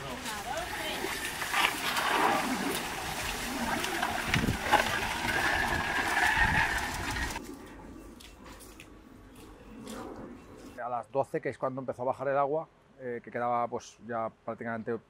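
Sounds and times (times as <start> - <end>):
squeegees scraping wet mud: 0.0 - 7.5.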